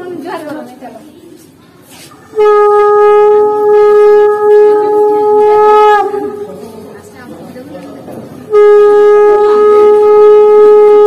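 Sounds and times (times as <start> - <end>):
conch shell blown: 2.3 - 6.7, 8.4 - 11.0.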